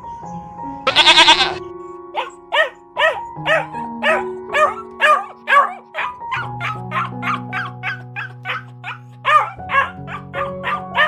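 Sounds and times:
background music with held notes: 0:00.0 - 0:11.0
sheep bleat: 0:00.9 - 0:01.6
husky barking: 0:02.2 - 0:11.0.

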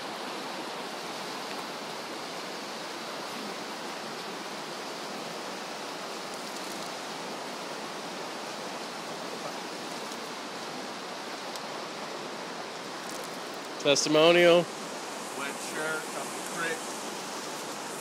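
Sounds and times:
river rushing over rocks: 0:00.0 - 0:18.0.

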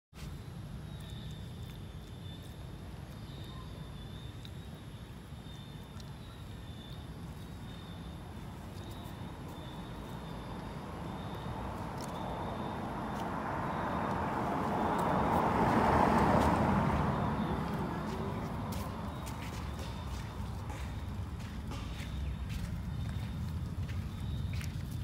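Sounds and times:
vehicle passing: 0:09.2 - 0:25.0.

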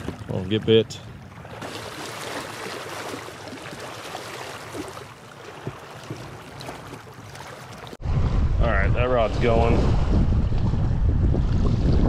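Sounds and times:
small waves lapping on rocks: 0:00.0 - 0:08.0.

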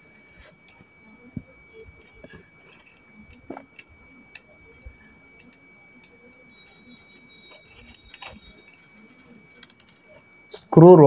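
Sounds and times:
small plastic parts clicking: 0:09.6 - 0:10.2.

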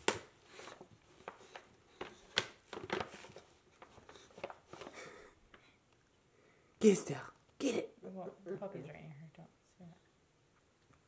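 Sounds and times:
dog rustling a gift box: 0:00.0 - 0:05.5.

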